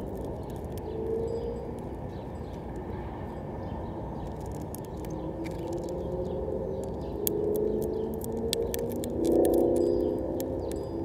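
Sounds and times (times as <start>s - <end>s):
finch cracking seeds clicks: 0.0s - 1.9s, 4.2s - 11.0s
faint droning hum: 0.0s - 11.0s.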